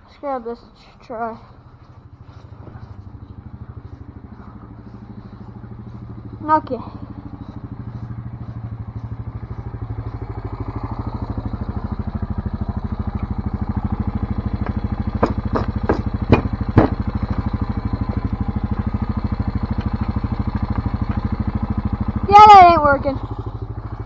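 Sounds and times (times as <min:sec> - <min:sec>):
atv engine idling: 0:00.0 - 0:24.0
knocks from handling rope: 0:14.6 - 0:17.0.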